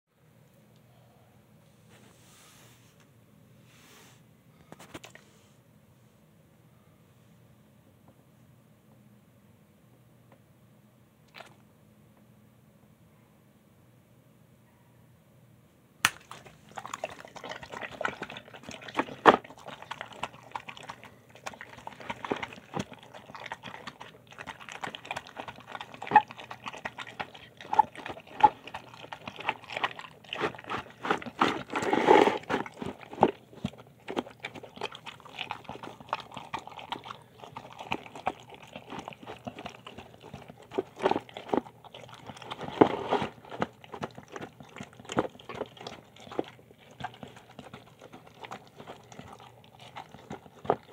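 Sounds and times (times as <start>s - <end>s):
dog chewing wet food: 16.1s - 50.9s.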